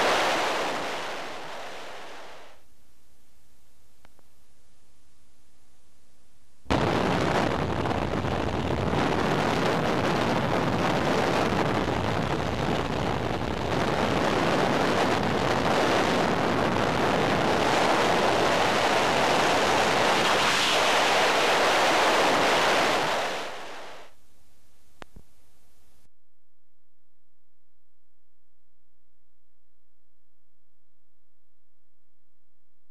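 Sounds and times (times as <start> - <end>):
wind rushing over microphone: 0.0 - 2.6, 6.7 - 24.1.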